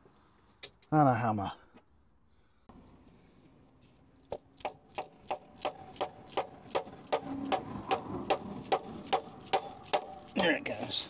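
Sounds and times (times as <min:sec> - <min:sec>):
hammer striking wood block: 0:04.3 - 0:10.2.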